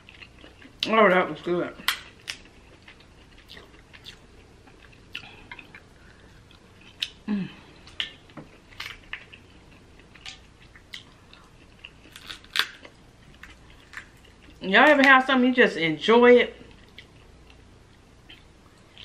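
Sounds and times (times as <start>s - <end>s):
wet chewing: 1.9s - 7.2s
crab shell cracking: 12.1s - 14.1s.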